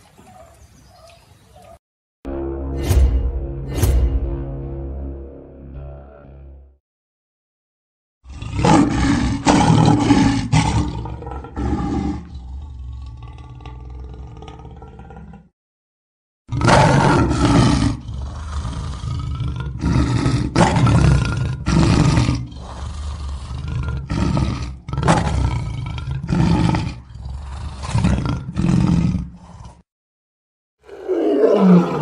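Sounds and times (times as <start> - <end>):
low rumble: 2.3 - 6.7
lion roaring: 8.3 - 15.5, 16.5 - 29.8, 30.8 - 32.0.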